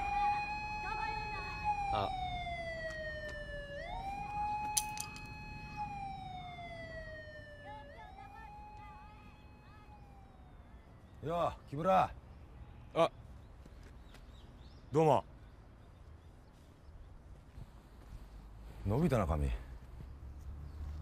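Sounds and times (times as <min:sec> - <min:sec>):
distant siren wailing: 0:00.0 - 0:12.0.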